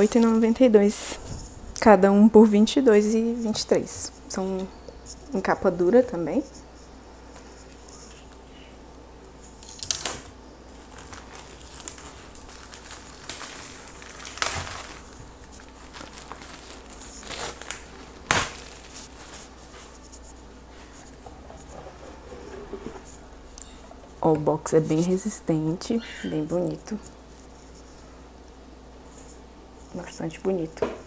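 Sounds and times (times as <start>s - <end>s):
plastic wrapping crinkling and tearing: 9.7s - 20.0s.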